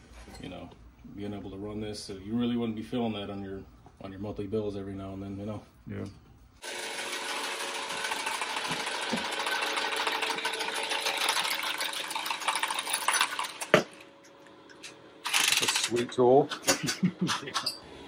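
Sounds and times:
pipe cutter whirring: 6.6 - 16.0.

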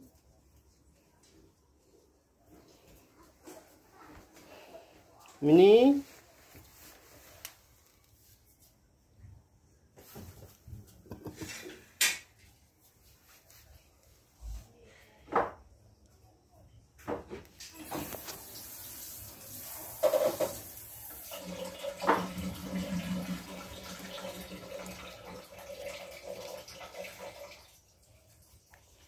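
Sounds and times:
water running from a tap: 17.6 - 28.7.

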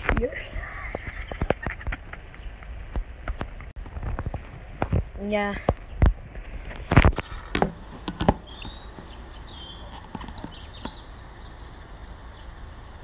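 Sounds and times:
outdoor background: 0.0 - 13.0
bird chirping: 0.3 - 2.7, 5.8 - 13.0
phone knocks and rustles: 6.9 - 8.5.

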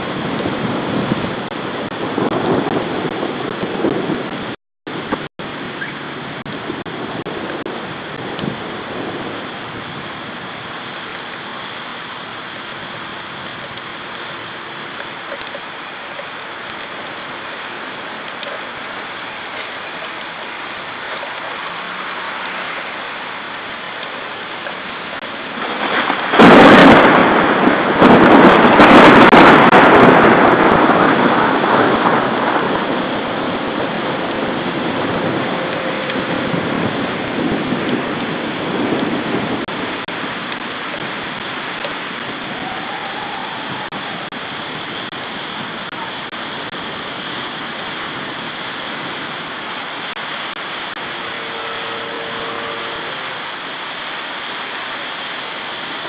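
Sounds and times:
thunder crack: 0.0 - 10.4, 25.2 - 53.6
rain hiss: 0.0 - 56.0
thunder rumble: 0.0 - 56.0.

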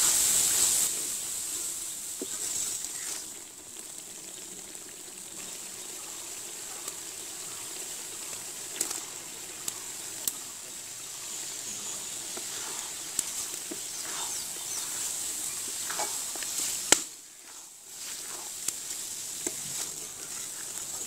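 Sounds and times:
food frying in oil: 0.0 - 21.0
wooden spatula scraping: 2.2 - 3.3, 11.8 - 21.0.

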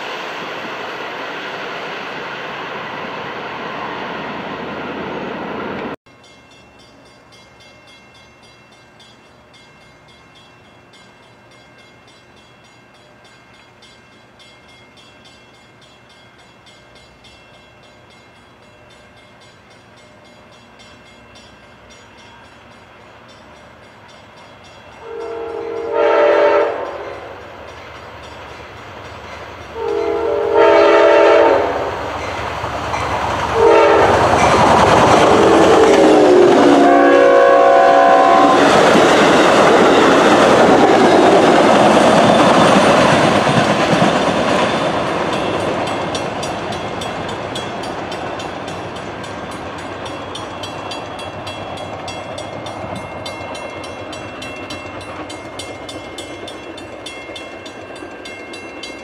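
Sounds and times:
passenger train passing: 0.0 - 59.0
train air horn blasts: 25.0 - 27.4, 29.7 - 32.0, 33.5 - 34.5, 35.3 - 38.8
train wheel clatter: 31.8 - 37.4, 38.3 - 59.0.

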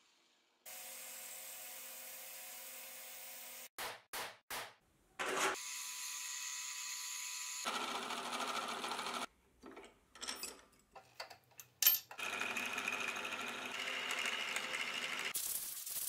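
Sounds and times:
metal bar clinking: 9.8 - 12.2.

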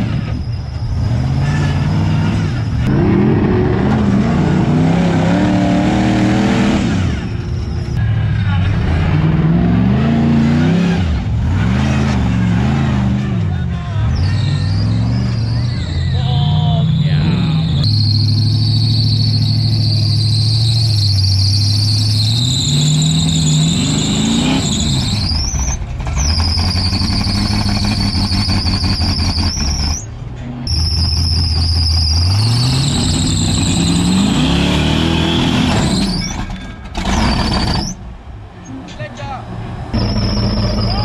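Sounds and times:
engine revving hard: 1.0 - 7.2, 8.7 - 13.4, 31.1 - 36.2.

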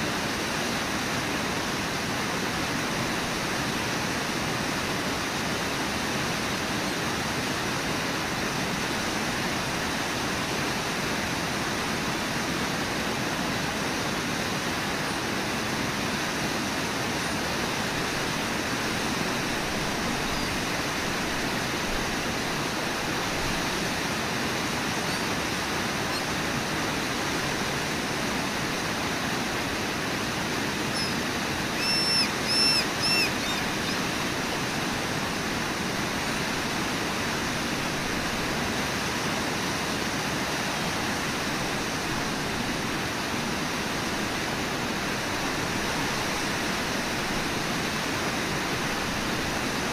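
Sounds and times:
river rapids rushing: 0.0 - 49.9
short high-pitched calls: 25.0 - 25.3, 30.9 - 34.1.

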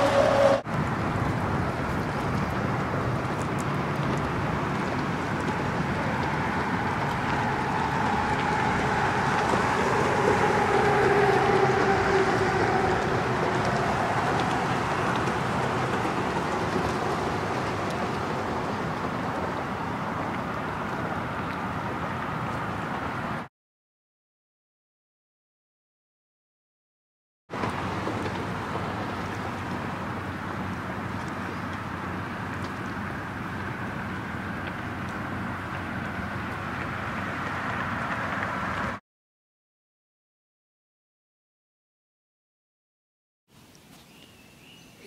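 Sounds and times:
highway traffic drone: 0.0 - 23.5, 27.5 - 39.0
vehicle passing by: 0.0 - 23.5, 27.6 - 39.0.

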